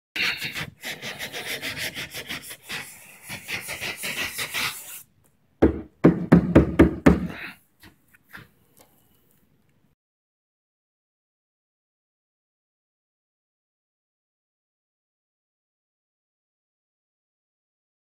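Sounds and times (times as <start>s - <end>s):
hand sanding strokes: 0.2s - 5.0s
loud knocks: 5.6s - 7.4s.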